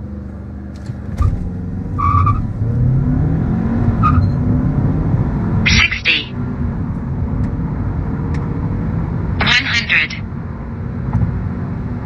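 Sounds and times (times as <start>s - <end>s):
car engine accelerating: 0.0s - 9.4s.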